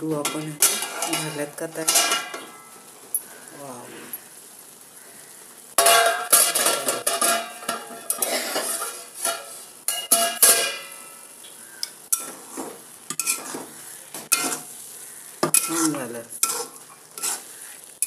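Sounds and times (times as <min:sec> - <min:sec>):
utensils clinking against steel pot: 0:00.2 - 0:03.3, 0:05.8 - 0:11.0, 0:13.1 - 0:13.6
spoon stirring with scraping clicks: 0:13.1 - 0:13.7, 0:15.5 - 0:17.5.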